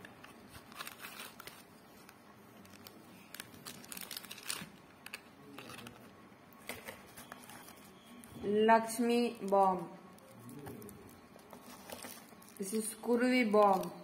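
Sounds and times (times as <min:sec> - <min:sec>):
plastic packet crinkling: 0:00.4 - 0:06.0, 0:08.9 - 0:14.0
cardboard packets tapping and rustling: 0:11.4 - 0:12.6.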